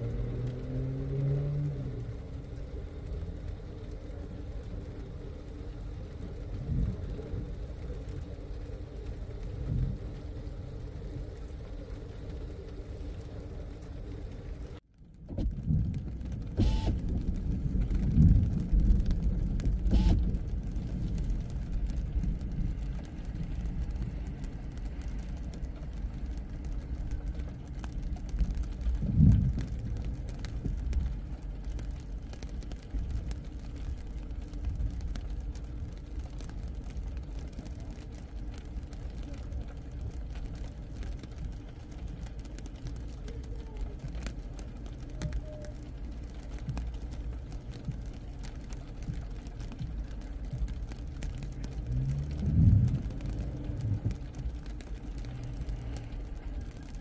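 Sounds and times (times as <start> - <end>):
low hum inside car: 0.0 - 57.0
wind buffeting microphone: 51.7 - 54.8.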